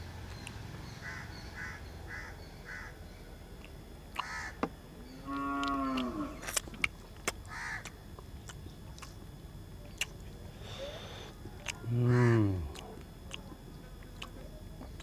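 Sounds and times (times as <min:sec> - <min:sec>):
crows cawing: 0:01.0 - 0:03.0, 0:04.2 - 0:04.7, 0:07.5 - 0:07.9, 0:12.0 - 0:12.5
cow mooing: 0:05.2 - 0:06.4.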